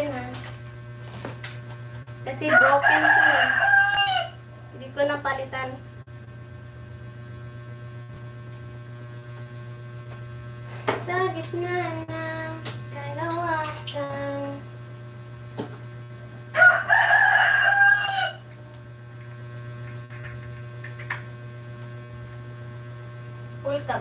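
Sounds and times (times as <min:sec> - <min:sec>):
electrical hum: 0:00.0 - 0:24.0
rooster crowing: 0:02.4 - 0:04.5, 0:16.5 - 0:18.5.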